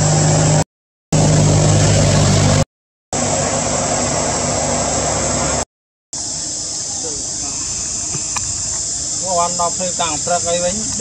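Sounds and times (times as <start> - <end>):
low motor drone: 0.0 - 0.6, 1.2 - 2.6, 3.2 - 5.6
high insect shrill: 6.2 - 11.0.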